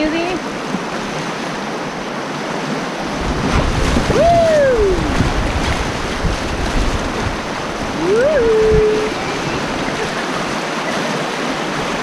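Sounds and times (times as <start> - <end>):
whitewater rapids rushing: 0.0 - 12.0
wind on microphone: 3.0 - 12.0.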